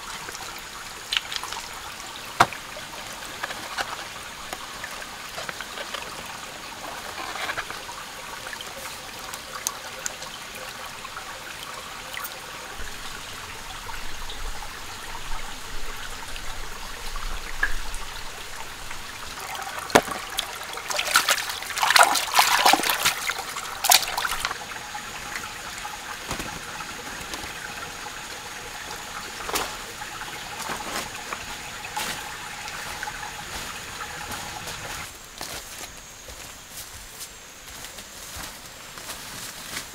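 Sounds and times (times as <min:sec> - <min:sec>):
stream trickling over rocks: 0:00.0 - 0:39.9
knocks and splashes at water's edge: 0:01.0 - 0:06.2, 0:19.3 - 0:24.6, 0:25.8 - 0:27.7, 0:29.3 - 0:35.1.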